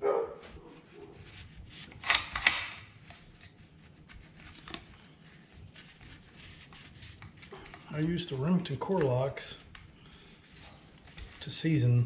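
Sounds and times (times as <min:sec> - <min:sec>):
rubbing of rifle parts: 0:00.4 - 0:12.0
rifle parts clicking: 0:01.9 - 0:03.5.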